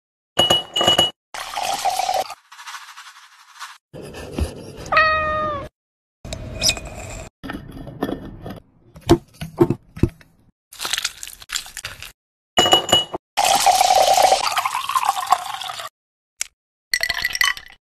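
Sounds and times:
cat meowing: 4.9 - 5.7.

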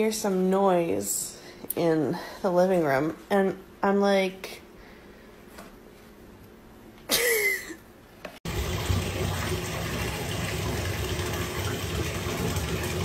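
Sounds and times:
water pouring: 8.4 - 13.0.

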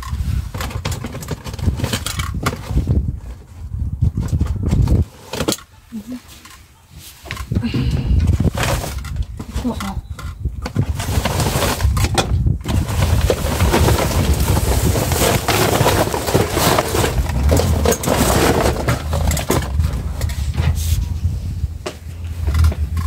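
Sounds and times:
low rumble: 7.6 - 23.0
paper bags rustling: 10.8 - 21.1.

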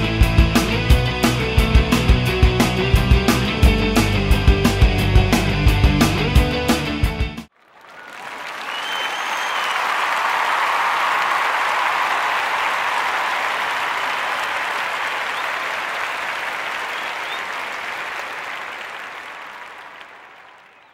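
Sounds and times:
crowd applauding and cheering: 7.5 - 20.9
whistling: 7.8 - 10.4, 12.2 - 20.9.

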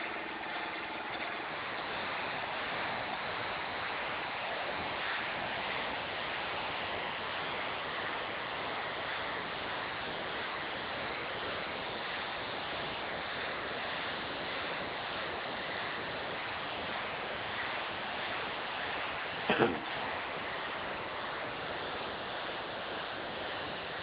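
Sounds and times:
air engine exhaust hissing: 0.0 - 24.0.

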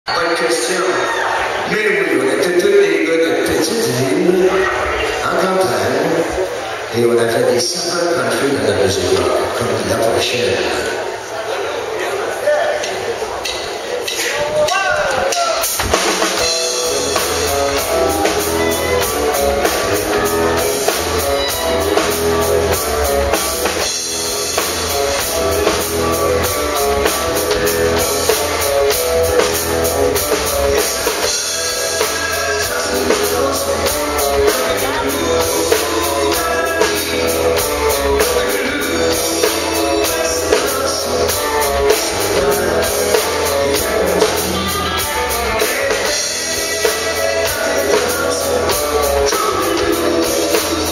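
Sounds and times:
drum kit beat: 13.4 - 50.9
electric guitar: 15.0 - 50.9
electric bass: 15.1 - 50.9.

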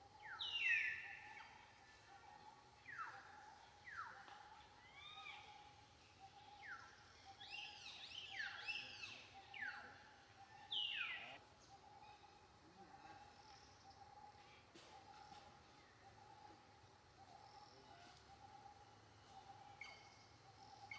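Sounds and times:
high chirping animal calls: 6.3 - 11.4.

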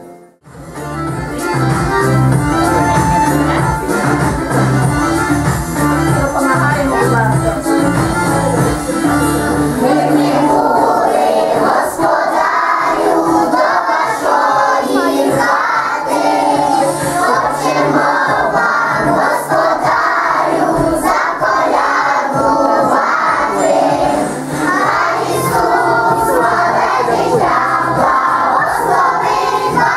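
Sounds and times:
music backing track: 0.0 - 29.9
children singing in chorus: 9.8 - 29.9.

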